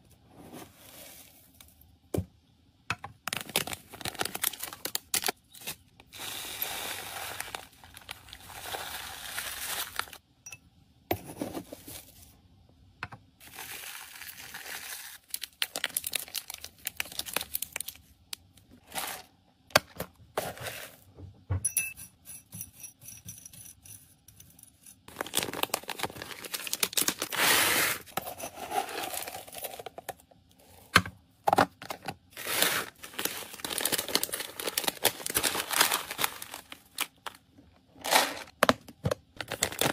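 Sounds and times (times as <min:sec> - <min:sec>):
plastic bags crinkling: 0:03.3 - 0:10.2, 0:13.4 - 0:18.0, 0:25.1 - 0:28.1, 0:31.8 - 0:37.4, 0:39.3 - 0:39.9
seed mix poured into bag: 0:06.2 - 0:10.2.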